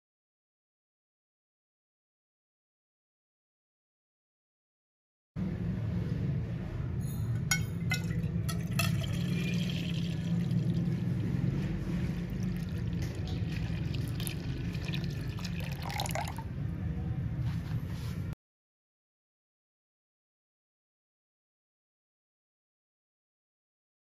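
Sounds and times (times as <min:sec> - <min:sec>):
milk pouring into metal pot: 0:07.5 - 0:16.4.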